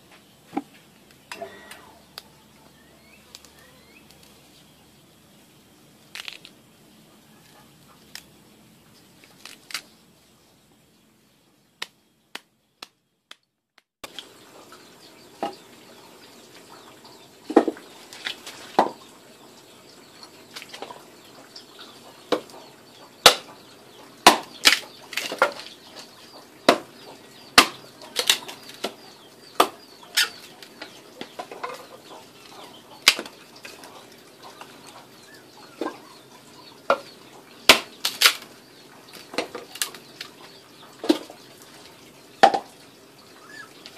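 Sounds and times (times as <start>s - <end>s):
blade chopping firewood: 23.2s - 23.5s, 24.2s - 25.8s, 26.7s - 26.9s, 27.5s - 29.0s, 33.0s - 33.4s, 37.7s - 38.5s.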